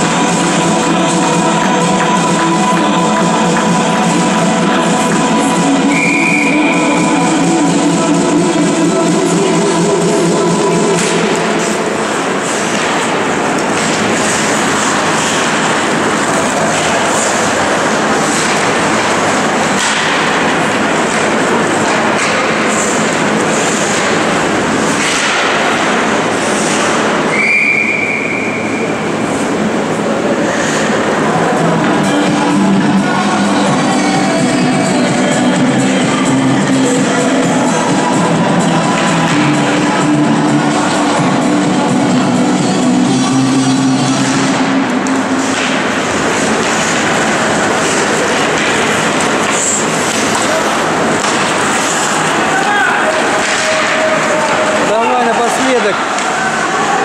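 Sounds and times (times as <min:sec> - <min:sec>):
background music: 0:00.0 - 0:22.2, 0:31.2 - 0:48.6
rushing noise of ice hockey play: 0:00.0 - 0:57.0
skate blades scraping ice: 0:11.0 - 0:27.4, 0:44.2 - 0:54.9.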